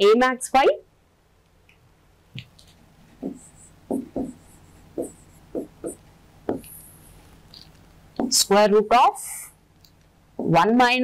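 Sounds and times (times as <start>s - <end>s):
pen writing on a board: 3.2s - 7.0s.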